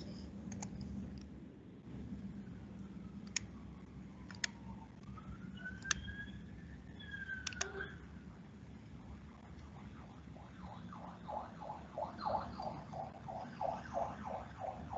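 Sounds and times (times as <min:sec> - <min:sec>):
faint room hum: 0:00.0 - 0:10.6
computer mouse clicking: 0:00.4 - 0:01.3, 0:03.2 - 0:03.6, 0:04.2 - 0:04.6, 0:05.7 - 0:06.2, 0:07.4 - 0:07.9.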